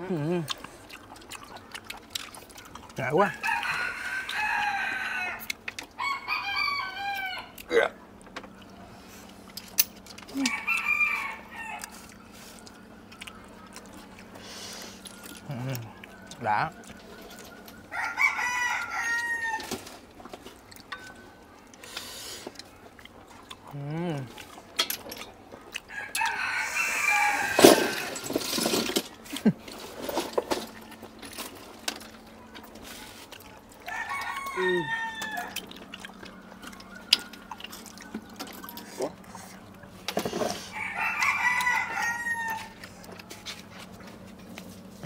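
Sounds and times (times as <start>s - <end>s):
distant crowing call: 3.3s - 7.6s, 17.5s - 19.9s, 25.9s - 28.6s, 40.6s - 42.8s.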